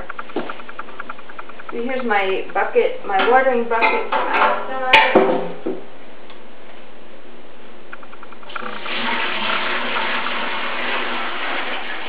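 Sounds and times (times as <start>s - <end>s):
water pouring into a bucket: 8.5s - 12.0s.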